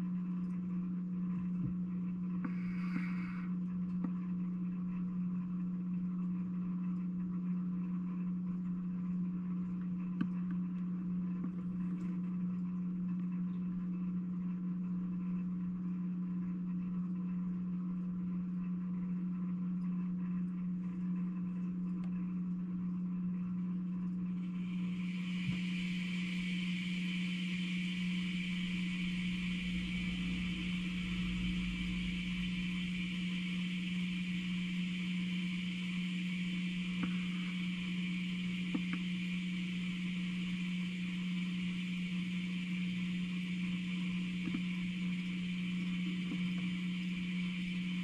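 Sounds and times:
low electrical hum: 0:00.0 - 0:48.0.

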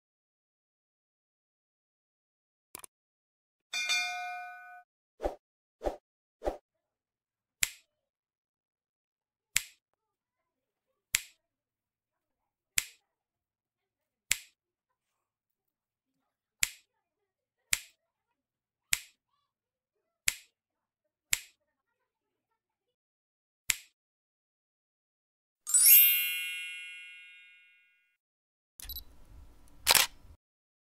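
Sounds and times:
sharp snap clicks: 0:23.7 - 0:24.0.

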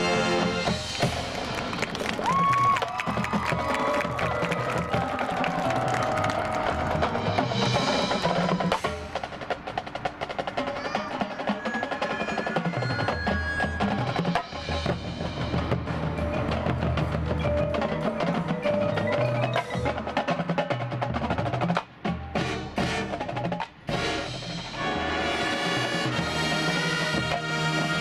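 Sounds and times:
rapid drumming: 0:00.6 - 0:24.8
bells and marimba: 0:03.8 - 0:08.3, 0:11.2 - 0:20.9.

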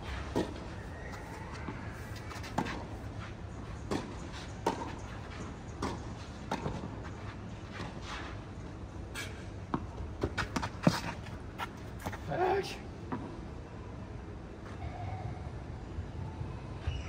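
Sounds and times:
tennis ball struck by rackets: 0:03.8 - 0:05.0, 0:05.8 - 0:07.0
tennis ball bouncing on court: 0:03.8 - 0:07.0, 0:09.7 - 0:11.2.

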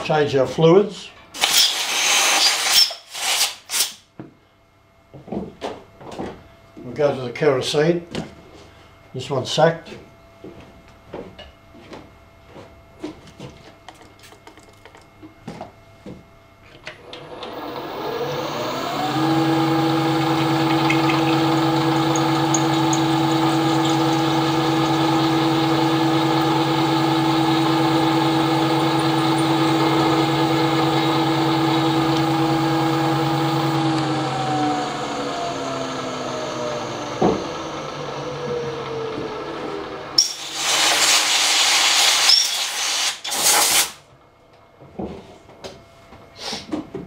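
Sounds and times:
milling machine spindle humming: 0:16.9 - 0:40.9.

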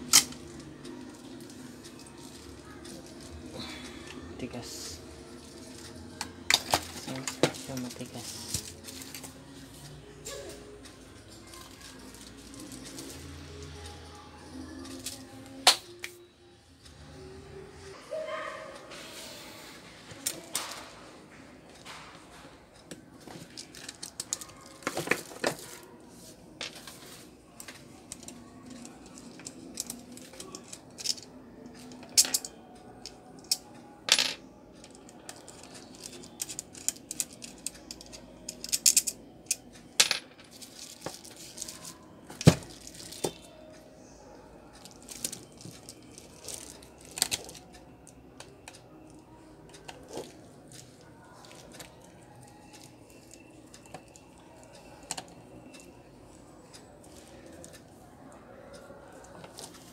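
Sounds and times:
metal parts clinking on plastic: 0:32.0 - 0:32.6, 0:35.2 - 0:39.6, 0:44.8 - 0:47.6.

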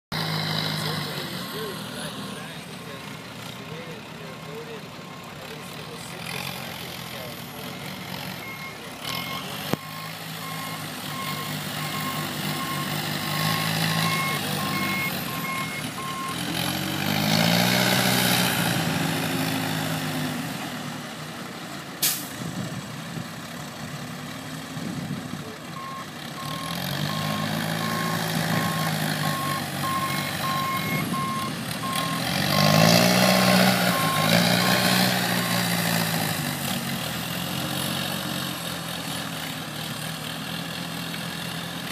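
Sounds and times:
forklift engine revving: 0:00.1 - 0:41.9
reversing alarm beeps: 0:08.4 - 0:16.4, 0:25.8 - 0:32.8, 0:33.9 - 0:35.6.

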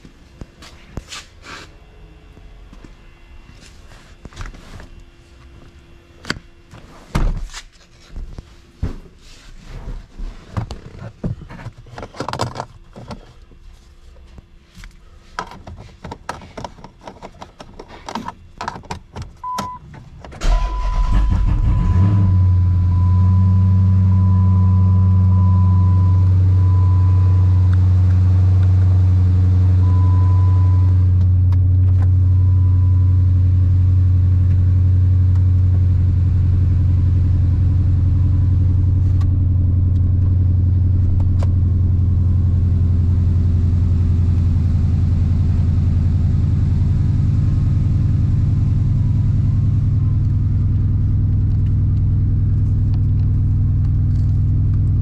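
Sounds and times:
handling clicks and knocks: 0:10.7 - 0:13.3, 0:15.4 - 0:20.4
car engine starting and idling: 0:18.6 - 0:55.0
steady high tone: 0:20.4 - 0:28.0.

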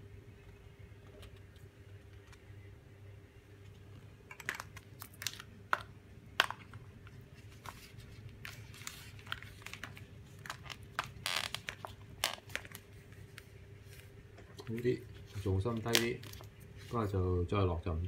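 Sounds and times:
hands handling plastic wrapping: 0:04.4 - 0:17.1.

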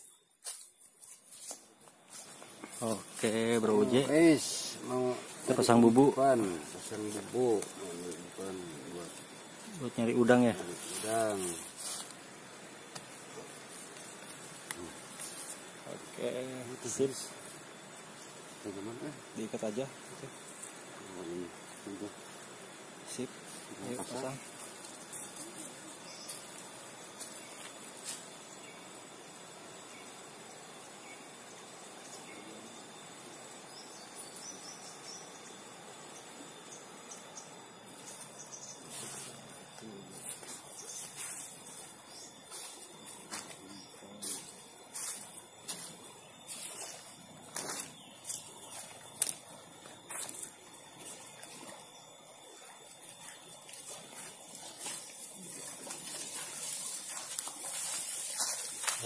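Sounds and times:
insects droning: 0:00.0 - 0:59.0
low hiss: 0:00.0 - 0:59.0
water trickling and lapping: 0:46.5 - 0:59.0.

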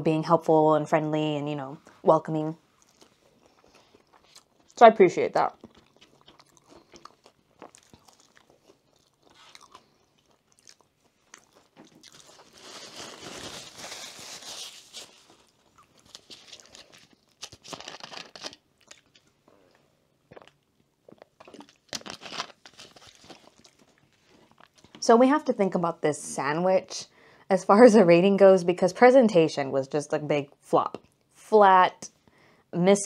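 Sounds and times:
crunching and chewing fries: 0:02.8 - 0:04.8, 0:05.5 - 0:24.9.

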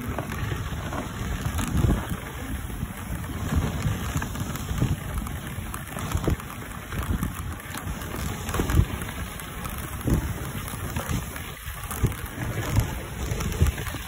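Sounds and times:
sled runners hissing on snow: 0:00.0 - 0:14.0
wind buffeting microphone: 0:00.0 - 0:14.0.

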